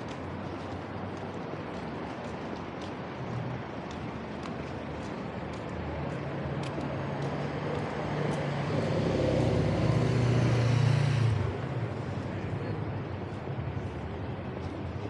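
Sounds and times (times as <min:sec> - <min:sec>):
traffic noise: 0:00.0 - 0:15.0
vehicle engine passing by: 0:06.5 - 0:12.0.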